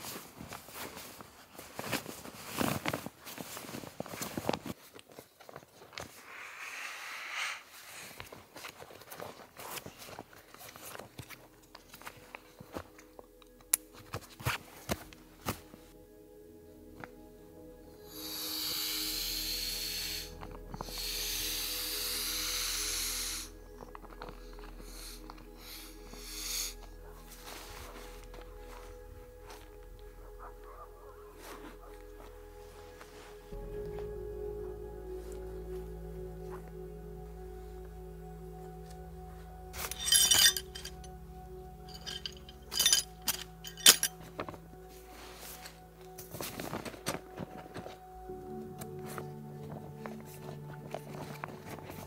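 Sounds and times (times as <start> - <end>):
fabric rustles and clicks: 0.0 - 6.2
nylon bags rustling and crinkling: 0.0 - 6.2, 8.0 - 16.0, 26.8 - 29.9, 39.8 - 52.0
air hissing out of valve: 6.2 - 7.8, 18.1 - 23.5
soft background music: 8.4 - 52.0.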